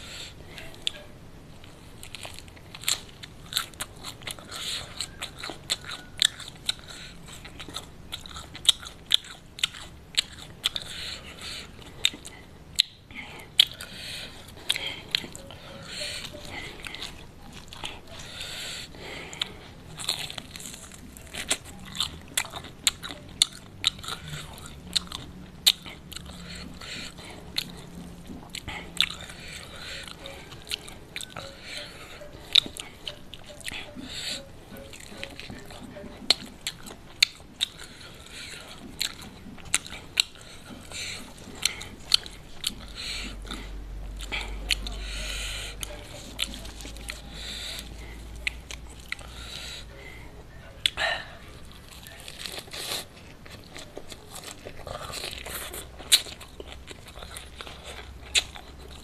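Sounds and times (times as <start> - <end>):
chewing crunchy food: 0.0 - 59.0.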